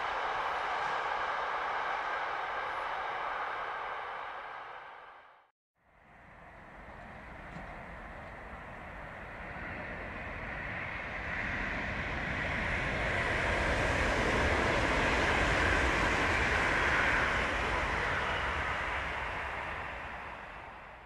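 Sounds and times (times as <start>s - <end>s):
train wheels rumbling on rails: 6.4s - 21.0s.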